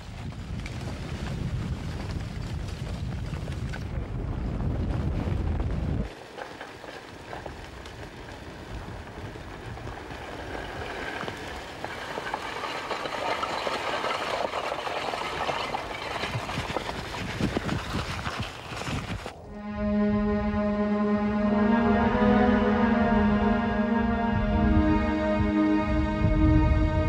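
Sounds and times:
lava crackling and clattering: 0.0s - 19.4s
low rumble: 19.4s - 27.0s.

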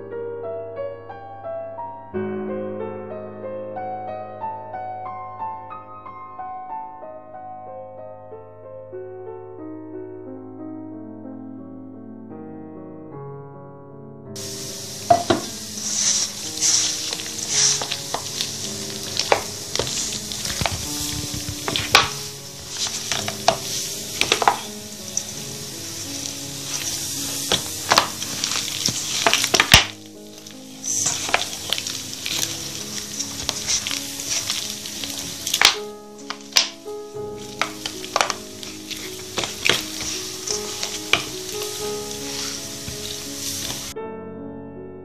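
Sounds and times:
soft background piano music: 0.0s - 45.0s
hands kneading wet dough: 14.4s - 43.9s
dough knocking on steel bowl: 15.0s - 15.6s.

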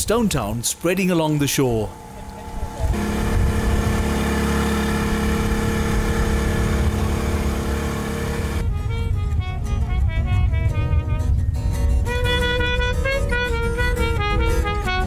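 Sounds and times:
outboard motor buzzing: 1.9s - 8.7s
music: 8.4s - 15.0s.

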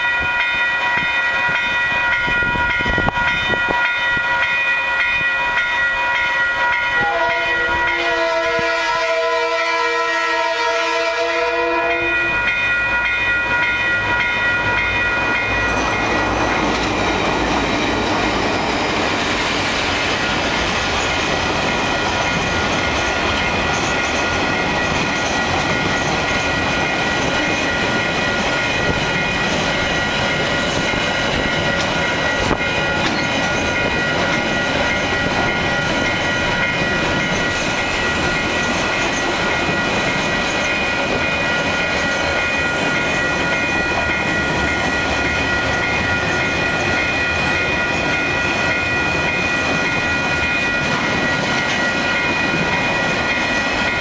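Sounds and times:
level crossing alarm bells: 0.0s - 16.3s
freight train wheels clacking: 11.8s - 54.0s.

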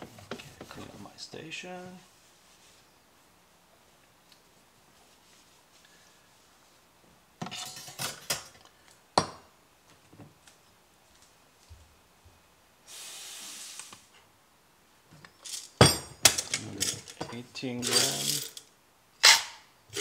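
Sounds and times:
espresso machine hiss: 12.9s - 13.9s
metal clinks and knocks: 15.4s - 18.7s.

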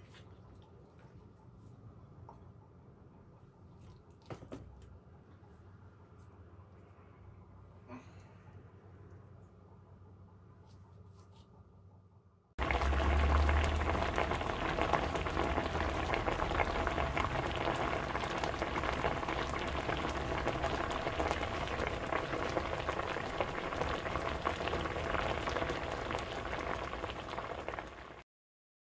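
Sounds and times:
low rumble: 12.6s - 26.3s
dense crackling and hissing: 12.6s - 28.2s.

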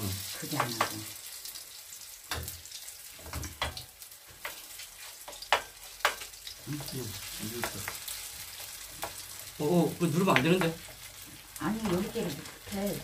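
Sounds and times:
utensils clacking against a pan: 0.0s - 1.1s, 2.3s - 9.5s
batter sizzling in hot oil: 0.0s - 13.0s.

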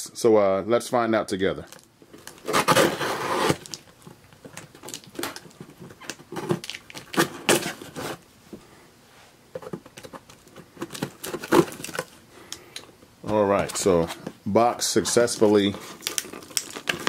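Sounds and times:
cardboard scraping and rustling: 2.2s - 3.7s, 5.1s - 8.2s, 9.5s - 12.1s
packing tape slit and torn: 16.0s - 17.0s.

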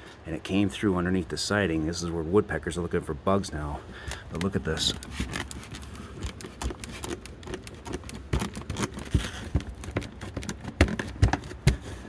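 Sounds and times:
wooden shingles knocking: 4.4s - 12.0s.

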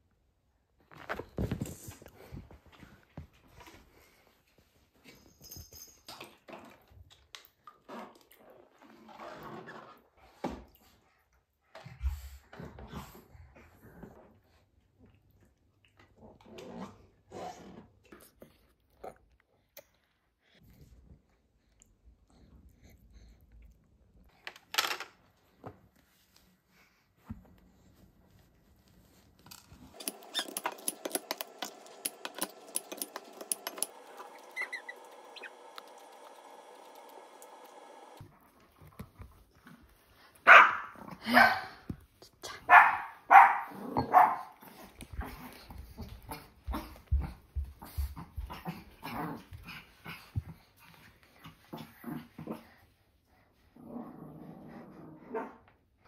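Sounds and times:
dog whining and yipping: 33.8s - 35.6s.

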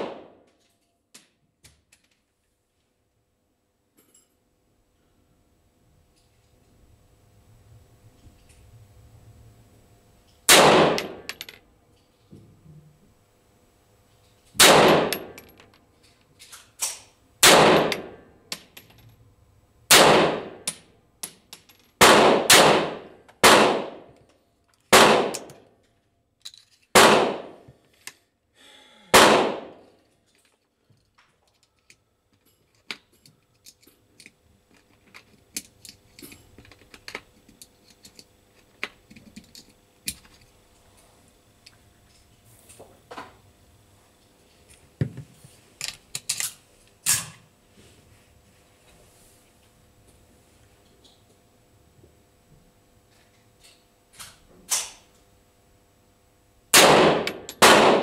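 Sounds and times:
pistol shots: 0.0s - 0.4s, 10.5s - 11.3s, 14.6s - 15.4s, 17.4s - 18.2s, 19.9s - 20.6s, 22.0s - 24.1s, 24.9s - 25.5s, 27.0s - 27.6s, 29.1s - 29.8s, 56.7s - 58.0s.

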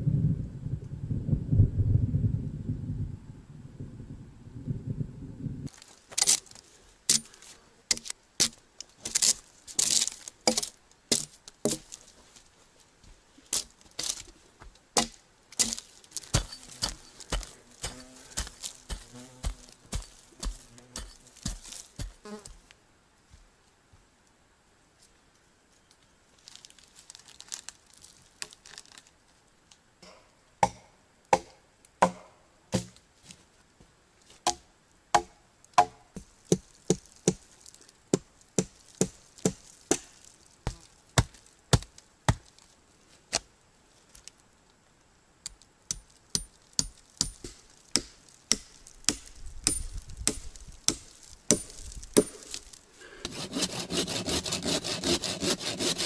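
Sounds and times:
axe chopping log: 7.9s - 9.2s, 9.8s - 12.0s, 15.0s - 22.2s, 30.6s - 33.0s, 34.4s - 37.4s, 38.1s - 40.2s, 45.9s - 52.6s
saw cutting wood: 53.2s - 56.0s.

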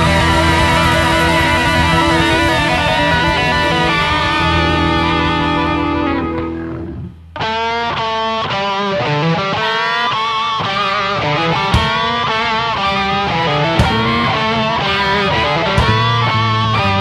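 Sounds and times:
blues-rock band playing: 0.0s - 17.0s
electric guitar bending notes: 0.0s - 17.0s
sharp drum hit: 11.6s - 16.4s.

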